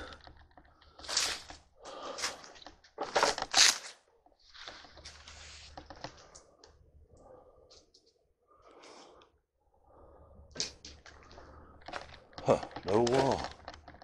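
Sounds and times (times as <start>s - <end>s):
footsteps crunching over debris: 1.0s - 3.7s
soft shuffling and rustling: 4.4s - 6.4s.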